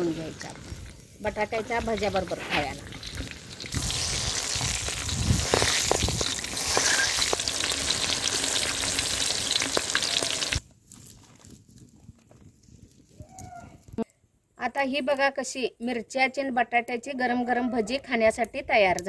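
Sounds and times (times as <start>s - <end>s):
chillies sizzling in hot oil: 0.0s - 10.6s.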